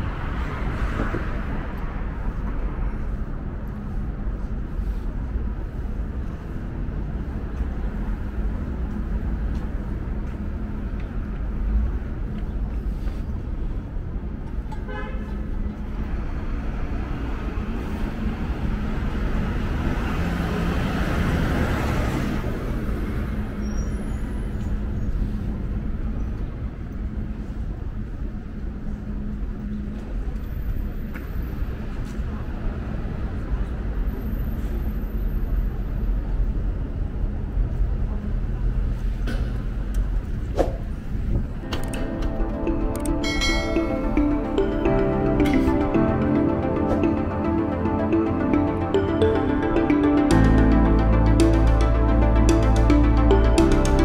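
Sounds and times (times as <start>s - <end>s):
traffic hum: 0.0s - 54.0s
vehicle passing loudly: 16.0s - 23.2s.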